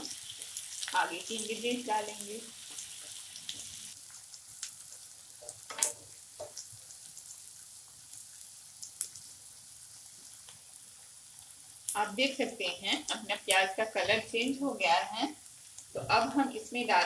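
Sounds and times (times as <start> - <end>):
spatula stirring in pan: 0.0 - 11.8
onions sizzling in oil: 0.0 - 17.0.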